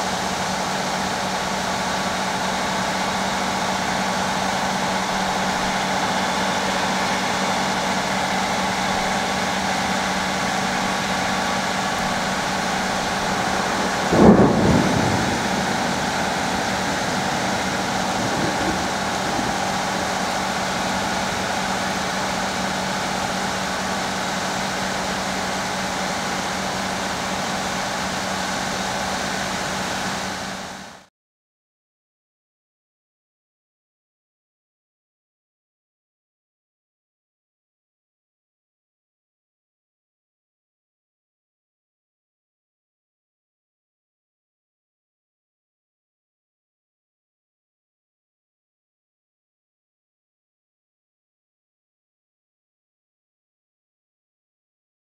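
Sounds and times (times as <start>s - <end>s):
steady rain hiss: 0.0s - 31.1s
thunder clap: 10.8s - 23.1s.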